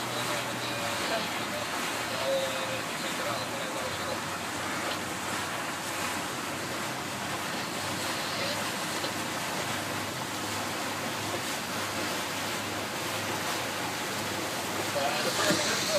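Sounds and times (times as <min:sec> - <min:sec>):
low engine hum: 0:00.0 - 0:15.9
water rushing: 0:00.0 - 0:15.9.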